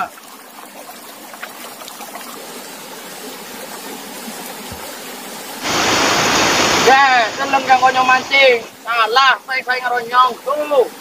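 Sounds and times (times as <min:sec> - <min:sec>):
river flowing over rocks: 0:00.5 - 0:08.8.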